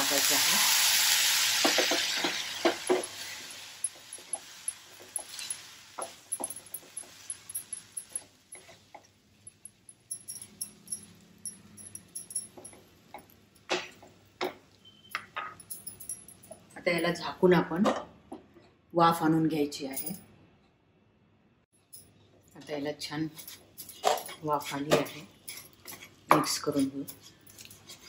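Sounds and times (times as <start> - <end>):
water sizzling on hot pan: 0.0 - 9.0.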